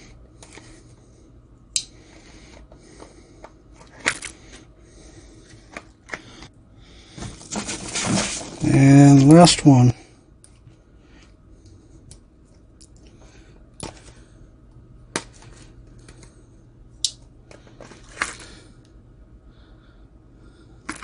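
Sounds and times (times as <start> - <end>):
packaging rustling: 7.2 - 9.2, 17.6 - 18.6.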